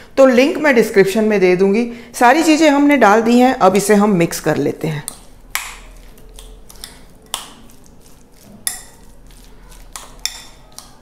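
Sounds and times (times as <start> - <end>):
spoon mashing and scraping: 5.0 - 11.0.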